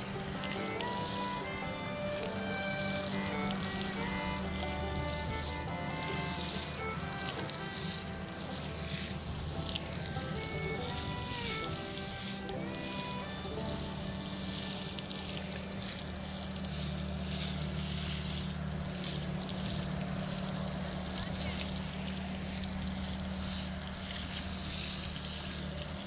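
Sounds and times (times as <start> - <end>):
music: 0.0 - 16.2
hose spray hissing onto soil: 0.0 - 26.0.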